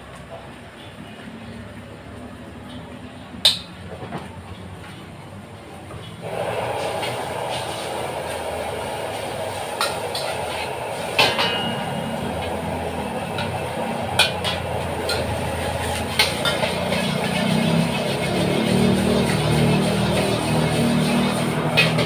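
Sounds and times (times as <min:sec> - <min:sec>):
gas burner roaring: 0:00.0 - 0:22.0
metal spatula scraping wok: 0:06.2 - 0:22.0.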